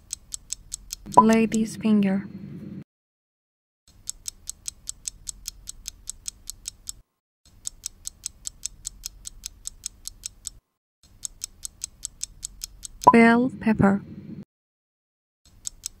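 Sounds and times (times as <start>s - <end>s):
fast clock ticking: 0.0s - 1.4s, 4.0s - 7.0s, 7.6s - 10.6s, 11.2s - 13.1s.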